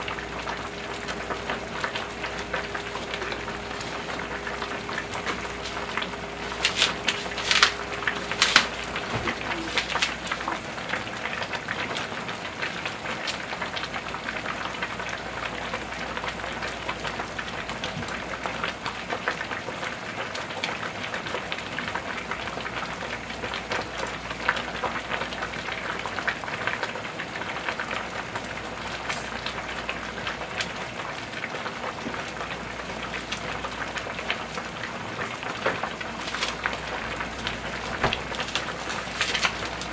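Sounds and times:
faint steady hum: 0:00.0 - 0:13.0
soup bubbling and boiling: 0:00.0 - 0:39.9.

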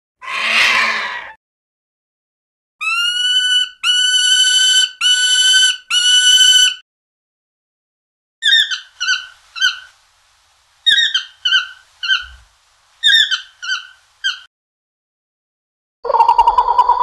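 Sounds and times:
toucan calling: 0:02.8 - 0:06.8, 0:08.4 - 0:10.0, 0:10.8 - 0:14.5.

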